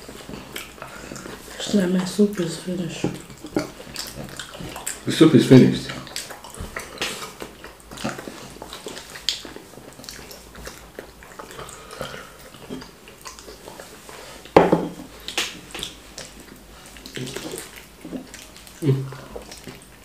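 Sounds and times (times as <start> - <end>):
wet chewing and mouth smacks: 0.0 - 20.0.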